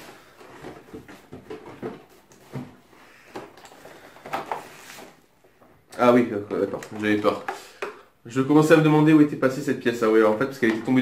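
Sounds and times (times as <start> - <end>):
plastic tray crinkling and rustling: 6.1 - 7.6.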